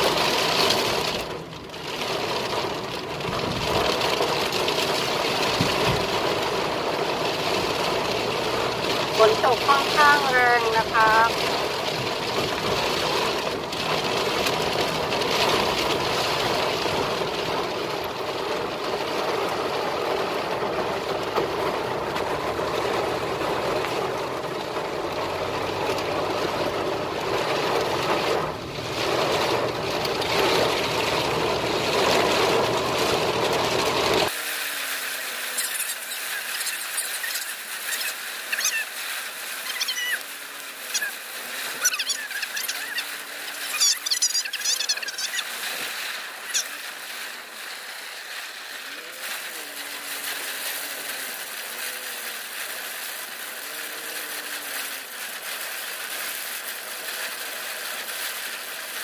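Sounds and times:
raindrops ticking on glass: 0:00.0 - 0:34.3
heavy rain drumming on car roof: 0:00.0 - 0:59.0.

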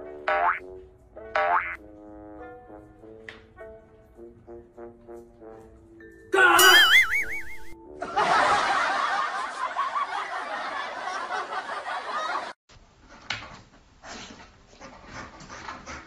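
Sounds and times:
people laughing and snickering: 0:06.6 - 0:12.6.

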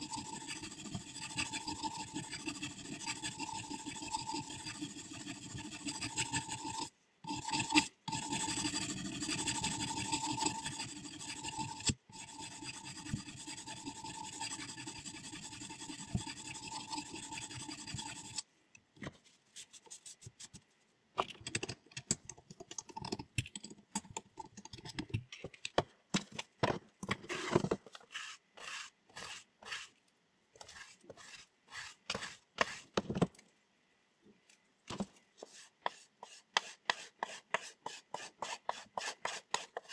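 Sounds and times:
sharpening stone rasping on blade: 0:00.0 - 0:18.4, 0:28.1 - 0:29.9, 0:30.6 - 0:32.8, 0:35.6 - 0:39.9.

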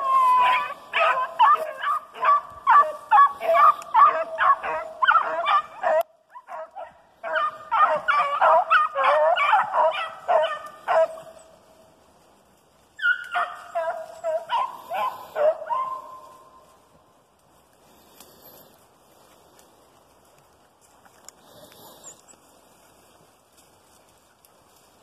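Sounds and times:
dogs baying: 0:00.0 - 0:11.6, 0:13.0 - 0:16.6.

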